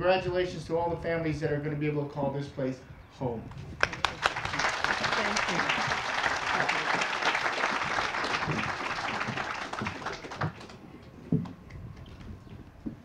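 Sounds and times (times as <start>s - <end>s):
audience applauding: 3.8s - 10.8s.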